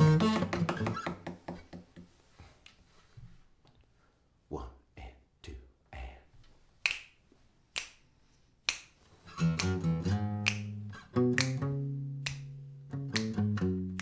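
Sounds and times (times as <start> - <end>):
acoustic guitar playing: 0.0 - 1.2, 9.3 - 14.0
finger snaps: 6.8 - 14.0.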